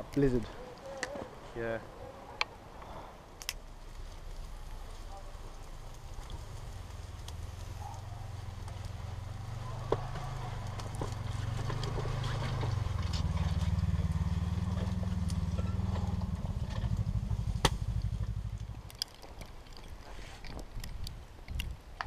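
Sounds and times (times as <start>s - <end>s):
wood fire crackling: 0.0s - 22.0s
steady low rumble: 12.8s - 19.0s.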